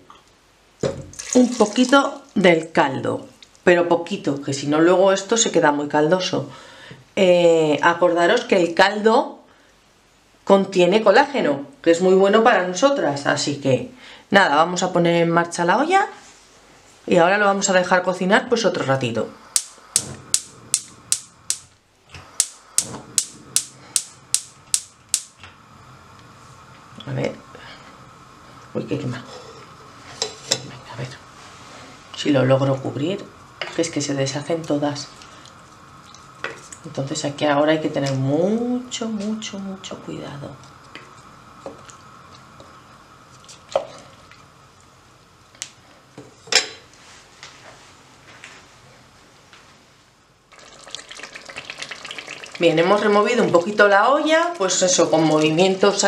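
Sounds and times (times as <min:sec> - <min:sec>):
gas hob igniter clicking: 0:19.5 - 0:25.5.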